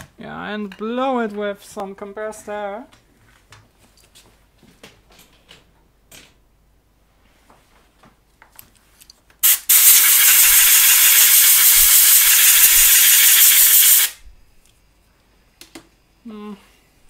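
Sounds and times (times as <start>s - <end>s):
compressed air hissing: 9.4s - 14.2s.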